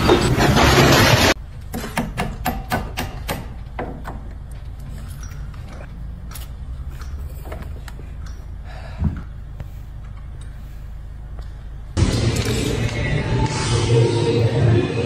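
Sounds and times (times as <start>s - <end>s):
tools clicking and clinking: 4.3s - 8.5s
loud burst of noise: 12.0s - 15.0s.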